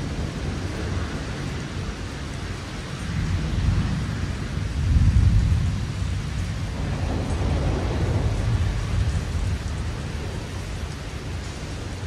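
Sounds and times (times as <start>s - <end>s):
rain hissing: 0.0s - 12.0s
thunder rumbling: 3.1s - 12.0s.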